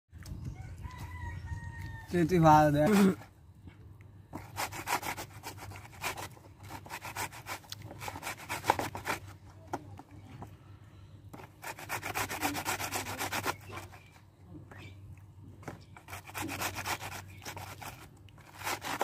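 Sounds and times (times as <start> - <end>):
mango scraping on metal grater: 2.3 - 3.3, 4.4 - 9.4, 11.4 - 14.2, 15.6 - 19.0.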